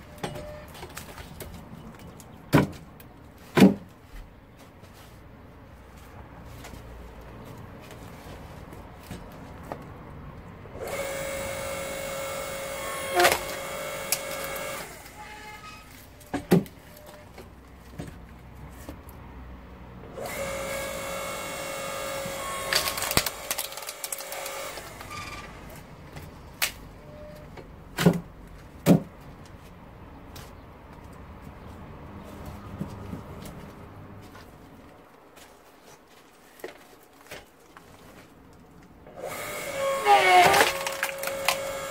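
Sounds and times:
log splitter motor hum: 10.8s - 15.6s, 20.1s - 25.8s, 39.1s - 41.9s
wood cracking as it splits: 22.2s - 25.2s, 36.5s - 41.9s.

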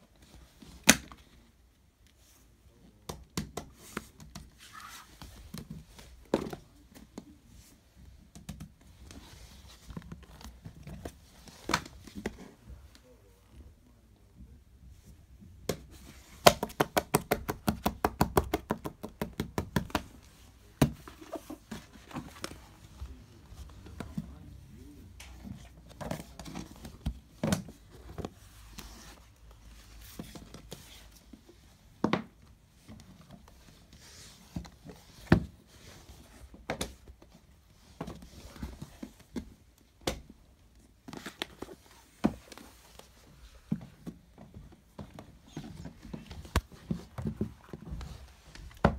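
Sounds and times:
books knocking and thumping: 3.0s - 7.4s, 8.1s - 12.9s, 15.6s - 40.4s, 41.0s - 48.9s.

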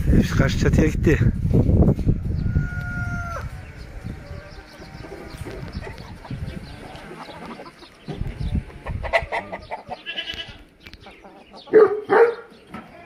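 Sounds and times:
chickens clucking: 1.6s - 13.0s
chicken squawk: 2.3s - 3.6s, 8.7s - 10.6s.

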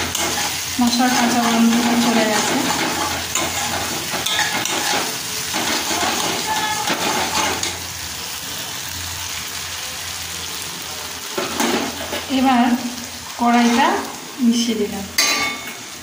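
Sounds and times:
spatula scraping a metal pan: 0.0s - 7.8s
spice paste sizzling in oil: 0.0s - 16.0s.

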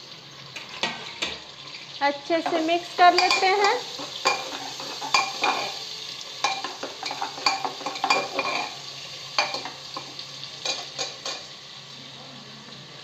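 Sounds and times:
onions sizzling in oil: 0.0s - 13.0s
spoon scraping metal pot: 2.4s - 5.8s, 6.4s - 8.8s.

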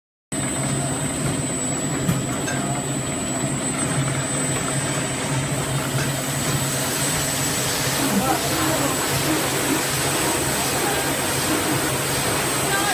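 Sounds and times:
thin high whine: 5.2s - 12.9s.

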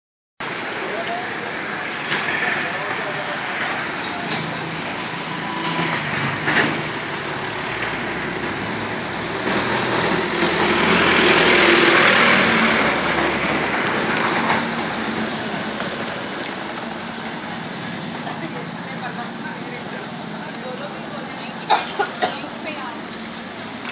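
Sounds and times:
diesel truck driving past: 0.4s - 23.9s
road traffic: 0.4s - 23.9s.

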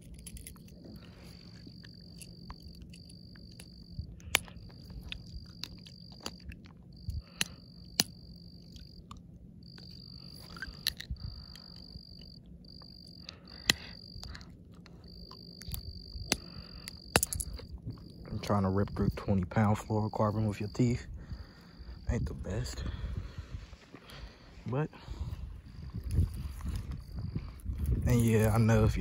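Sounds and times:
insect trilling: 0.0s - 23.4s, 24.0s - 29.0s
low steady hum: 0.0s - 29.0s
sharp clicks: 2.3s - 12.3s, 13.2s - 14.4s, 15.2s - 17.6s.

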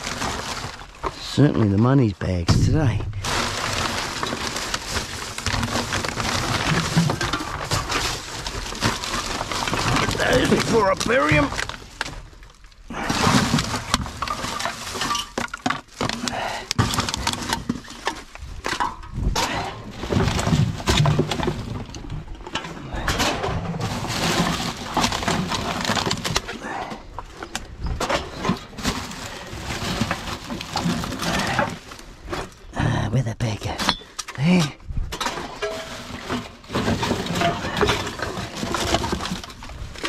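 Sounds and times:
plastic bags crinkling: 0.0s - 1.4s, 2.7s - 18.6s, 23.8s - 26.6s, 28.4s - 32.3s, 35.6s - 40.0s
cans and bottles clinking: 35.2s - 40.0s.

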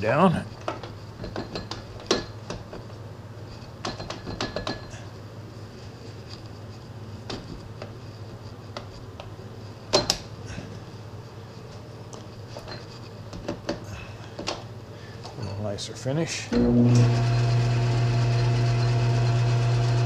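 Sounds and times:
metal lathe humming: 16.5s - 20.0s.

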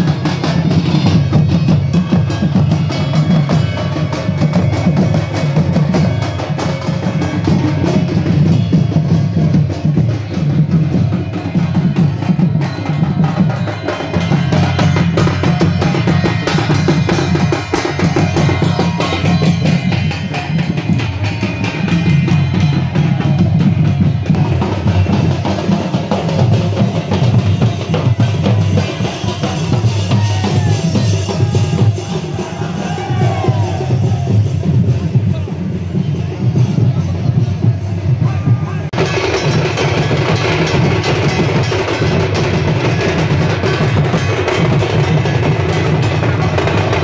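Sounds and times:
fast percussion strokes: 0.0s - 47.0s.

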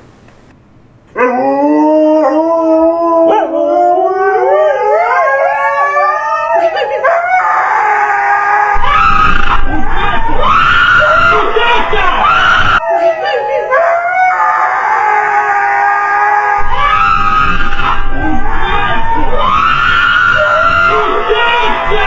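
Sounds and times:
dogs howling: 1.2s - 22.0s
person screaming: 6.4s - 22.0s.

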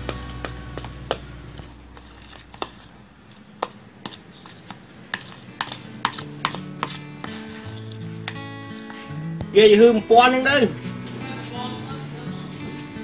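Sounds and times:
metal spoon scraping a bowl: 1.9s - 8.3s.

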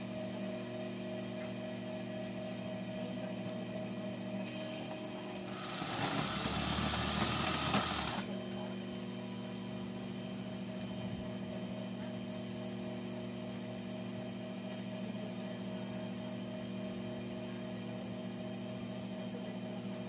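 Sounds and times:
sewing machine motor humming: 5.5s - 8.3s.

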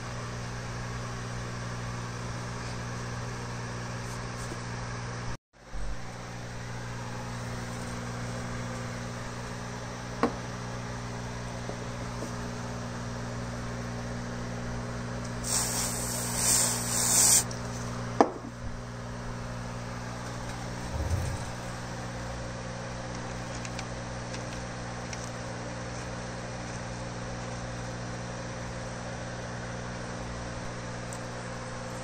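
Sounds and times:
background hum: 15.2s - 27.9s
aerosol can spraying: 15.4s - 17.5s
low thump: 20.8s - 21.7s.

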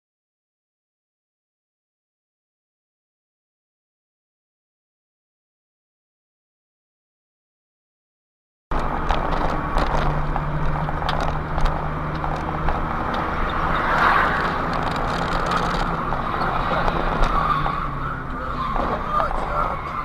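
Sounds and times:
engine hum and road noise: 8.7s - 20.0s
small clicks and rattles: 8.8s - 13.2s, 14.6s - 16.0s.

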